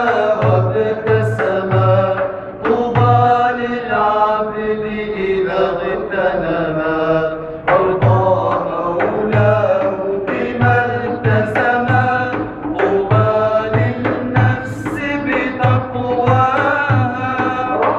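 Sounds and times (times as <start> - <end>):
frame drum beats: 0.0 - 3.6, 7.7 - 17.9
men singing devotional chant: 0.0 - 17.9.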